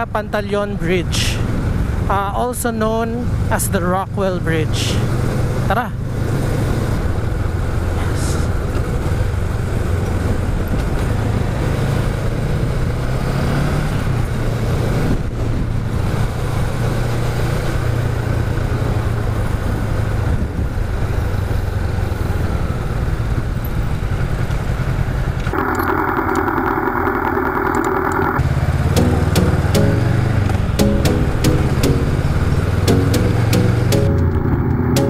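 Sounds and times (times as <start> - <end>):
road noise: 0.0 - 35.0
motorcycle engine running: 20.9 - 35.0.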